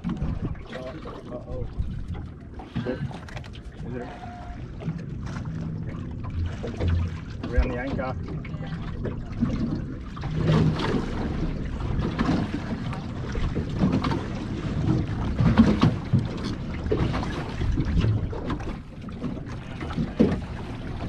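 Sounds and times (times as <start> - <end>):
water slapping against boat hull: 0.0 - 21.0
wind buffeting microphone: 0.0 - 21.0.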